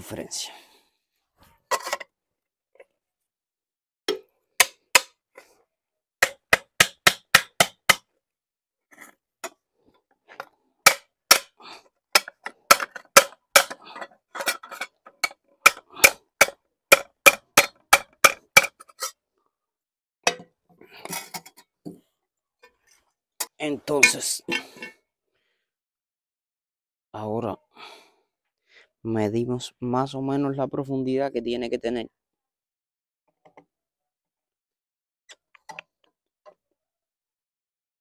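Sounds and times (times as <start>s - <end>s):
hammer striking steel plate: 10.9s - 11.5s.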